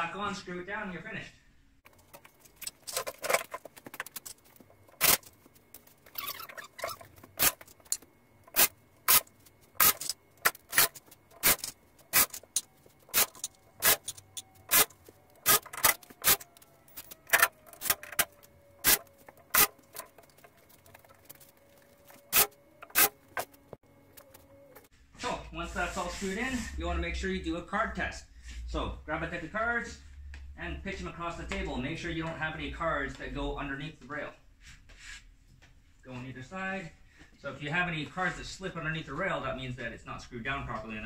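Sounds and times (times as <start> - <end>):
cordless drill screwing: 6.1 - 23.6.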